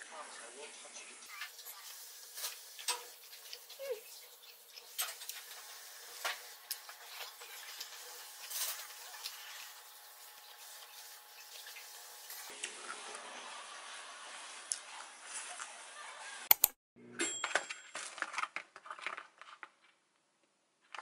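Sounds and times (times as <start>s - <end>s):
quiet chewing: 1.2s - 11.9s.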